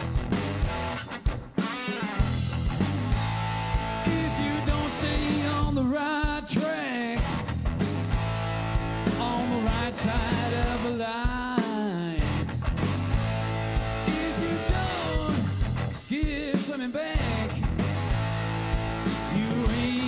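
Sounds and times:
drum kit: 0.0s - 20.0s
electric guitar: 0.0s - 20.0s
man singing: 4.0s - 7.4s, 9.0s - 12.5s, 14.0s - 17.8s, 19.2s - 20.0s.

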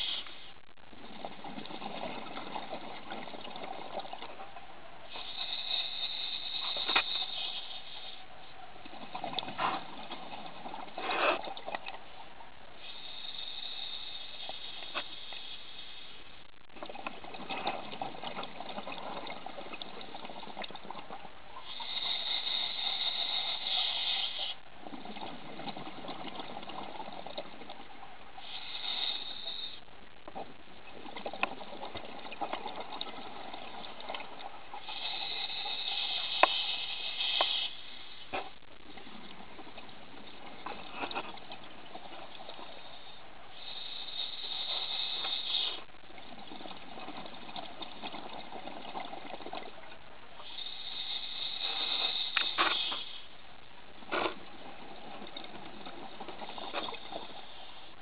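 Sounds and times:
exhaled bubbles gurgling: 0.0s - 15.0s, 16.5s - 58.0s
diver inhaling through regulator: 21.6s - 24.6s, 28.4s - 29.9s, 42.7s - 45.9s, 50.4s - 53.3s.

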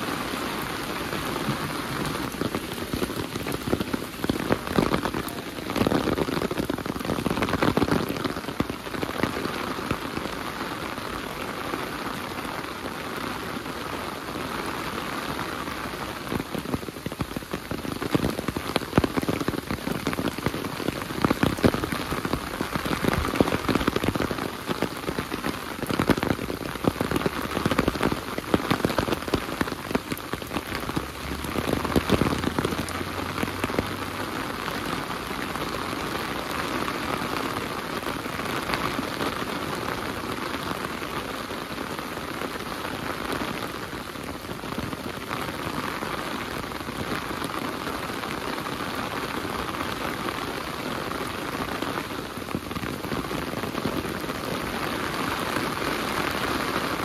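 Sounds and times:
heavy rain falling: 0.0s - 57.0s
sharp raindrop hits: 0.0s - 57.0s.

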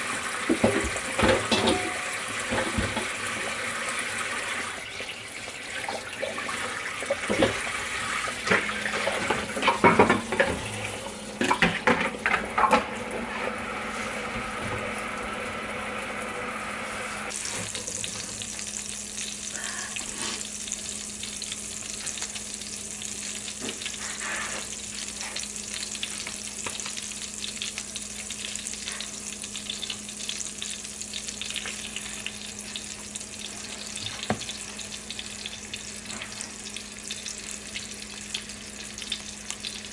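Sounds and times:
tap water running into sink: 0.0s - 13.0s, 17.3s - 39.9s
hot oil sizzling: 0.0s - 39.9s
frying pan clattering: 0.5s - 3.1s, 8.5s - 10.6s.

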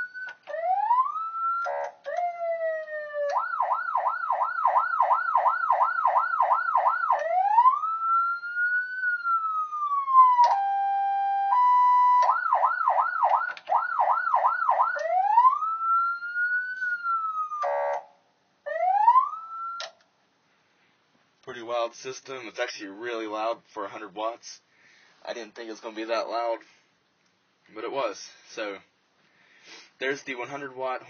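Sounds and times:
electronic siren yelp and wail: 0.0s - 18.1s, 18.7s - 20.0s.

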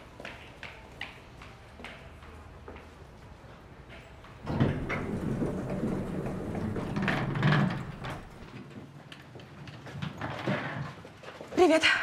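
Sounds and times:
elevator doors sliding: 4.4s - 8.6s.

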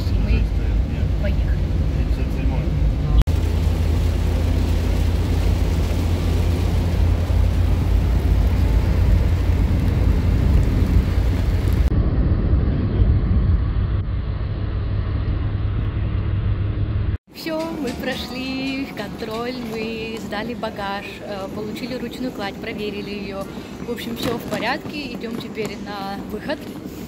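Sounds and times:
engine and tyres drone: 0.1s - 17.2s.

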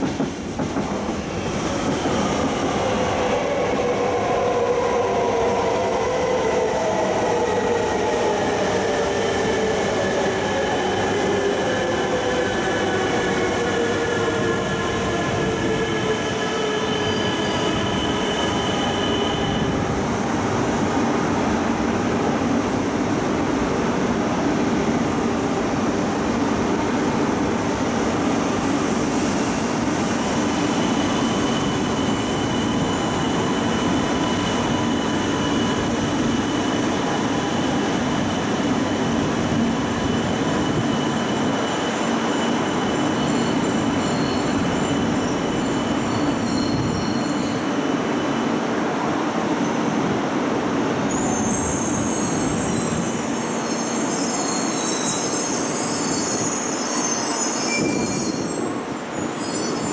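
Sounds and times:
train rolling rumble: 0.0s - 4.3s
high-pitched squeals: 51.1s - 59.9s.

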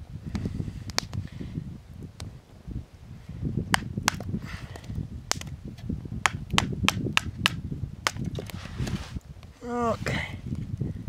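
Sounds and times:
campfire crackling and popping: 0.1s - 9.7s
low rustling: 8.2s - 11.0s.

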